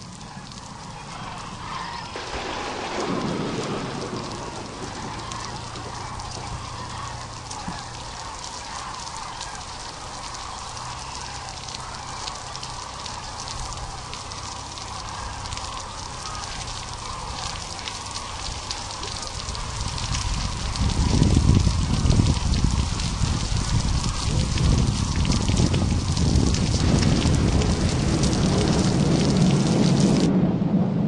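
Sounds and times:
steady rain patter: 0.0s - 30.3s
low rumble: 17.8s - 31.0s.

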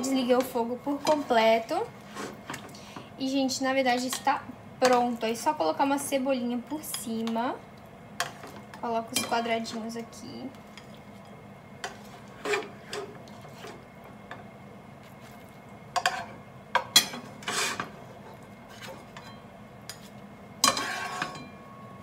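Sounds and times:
plastic spatula scraping a frying pan: 2.0s - 2.5s, 11.9s - 13.8s, 17.4s - 18.0s, 20.7s - 21.4s.

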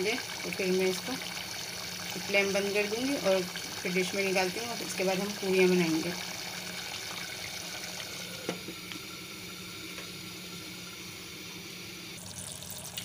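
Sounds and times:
curry bubbling in a pot: 0.0s - 8.6s.

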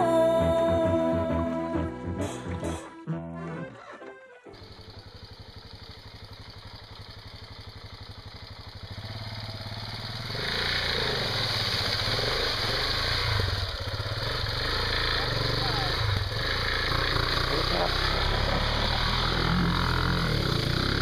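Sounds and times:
motorcycle engine chugging and revving: 4.5s - 21.0s
wheel churning through mud: 8.9s - 21.0s.

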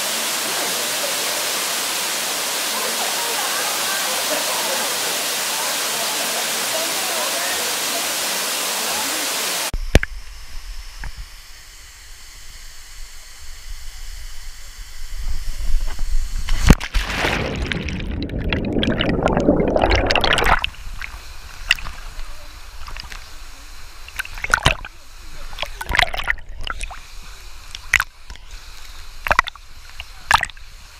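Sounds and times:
waterfall roaring: 0.0s - 9.7s
muffled water sloshing and gurgling: 16.5s - 23.2s, 24.1s - 27.1s, 29.2s - 30.6s
water splashes: 16.5s - 23.2s, 24.1s - 27.1s, 29.2s - 30.6s
underwater rushing: 16.5s - 30.6s.

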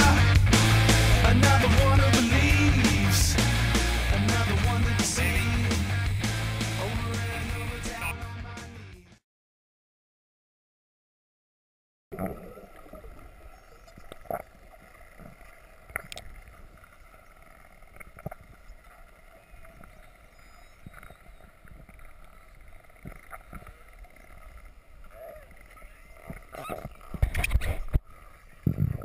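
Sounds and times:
underwater rumble and water noise: 12.1s - 29.0s.

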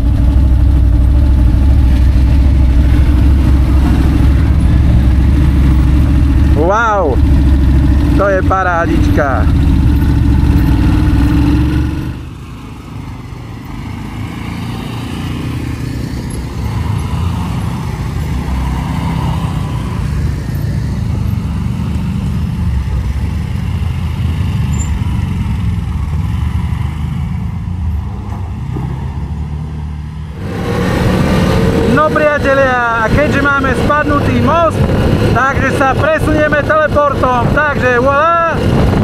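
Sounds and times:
quad bike engine running: 0.0s - 12.6s.

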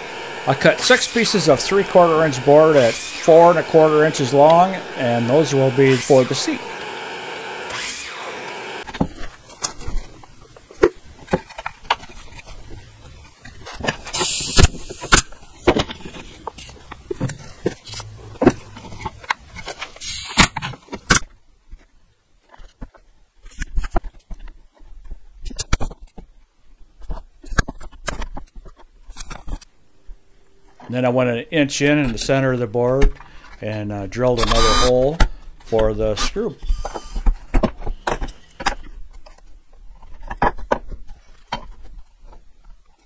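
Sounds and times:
nail gun firing with hiss: 0.0s - 9.0s, 14.1s - 15.3s, 20.0s - 20.7s.

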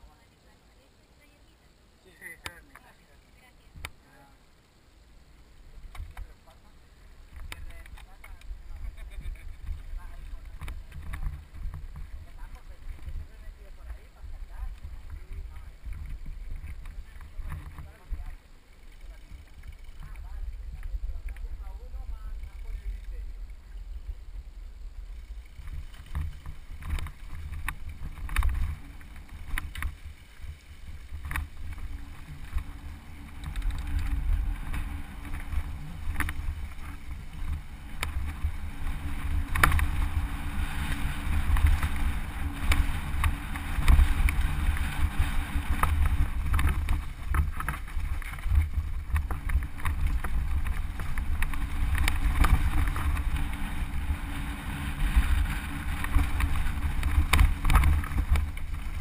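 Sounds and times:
wind buffeting microphone: 19.0s - 59.0s
bike tyres knocking over stones: 25.5s - 59.0s.

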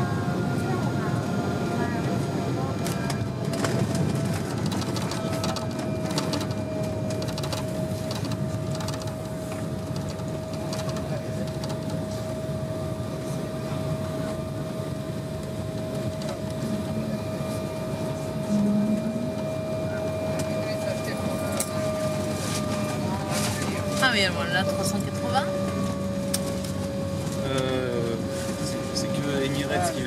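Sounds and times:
airliner cabin rumble: 0.0s - 30.0s
jet engine tone: 0.0s - 30.0s
wheels rattling on runway: 0.8s - 18.3s.

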